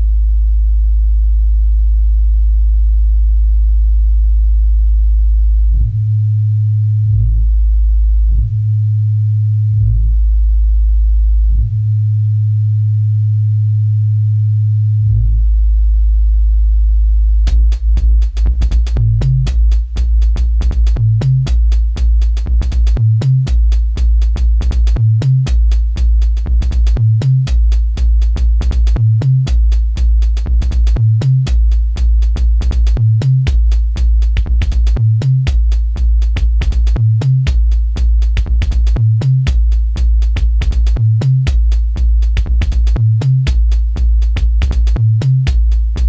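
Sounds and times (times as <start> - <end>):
electronic bass music: 0.0 - 46.0
heavy sub-bass: 0.0 - 46.0
fast hi-hat ticks: 17.4 - 46.0.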